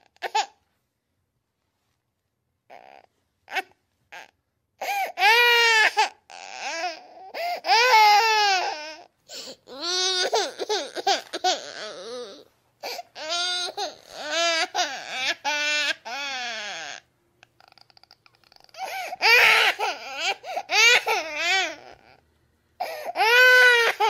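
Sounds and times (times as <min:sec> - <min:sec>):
baby crying: 0:00.0 - 0:00.6, 0:02.7 - 0:22.2, 0:22.8 - 0:24.0.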